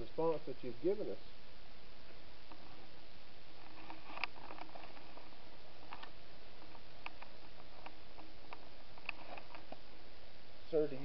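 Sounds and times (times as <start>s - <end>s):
steady hiss: 0.0s - 11.0s
faint ticks and clicks: 3.6s - 9.9s.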